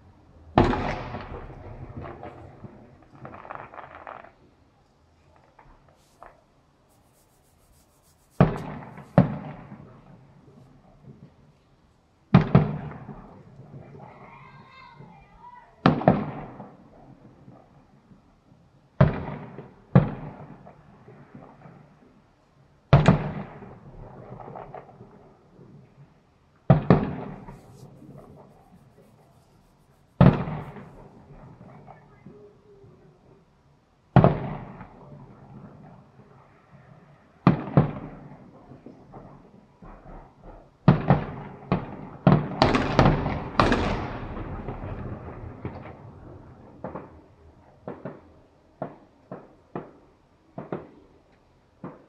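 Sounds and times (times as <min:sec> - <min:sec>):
fireworks bangs with rumble: 0:00.5 - 0:04.4, 0:08.4 - 0:10.3, 0:12.3 - 0:13.9, 0:15.8 - 0:16.8, 0:19.0 - 0:21.7, 0:22.9 - 0:25.1, 0:26.7 - 0:29.2, 0:30.2 - 0:32.3, 0:34.1 - 0:36.0, 0:37.4 - 0:47.2, 0:47.8 - 0:51.0
faint firework pops: 0:00.6 - 0:04.4, 0:08.3 - 0:10.0, 0:12.3 - 0:13.9, 0:19.0 - 0:20.7, 0:26.7 - 0:29.4, 0:30.1 - 0:32.4, 0:34.2 - 0:35.0, 0:37.4 - 0:46.0, 0:46.8 - 0:47.2, 0:47.8 - 0:52.0
firework shells bursting: 0:07.0 - 0:09.7, 0:27.0 - 0:31.1.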